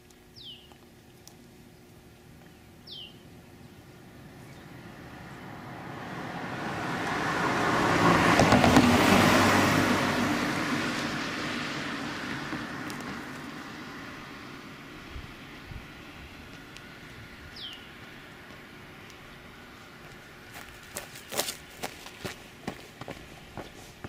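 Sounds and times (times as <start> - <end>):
bird chirp: 0.3 - 0.8, 2.4 - 5.5, 17.5 - 18.1
electric train running on track: 6.6 - 9.7.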